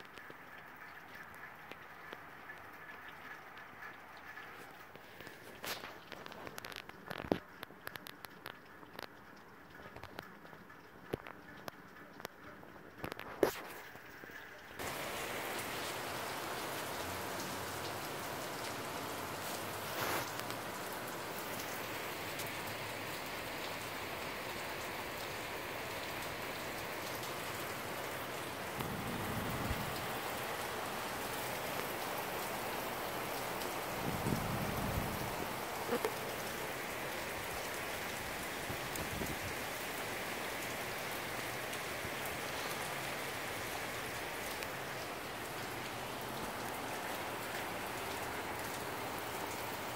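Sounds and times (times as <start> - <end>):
rain falling on roofs: 0.0 - 49.9.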